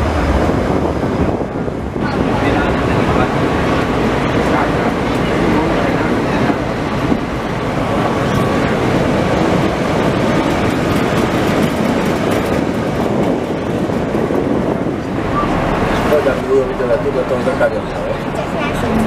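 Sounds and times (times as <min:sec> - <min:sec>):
tram wheels rumbling on rails: 0:00.0 - 0:19.0.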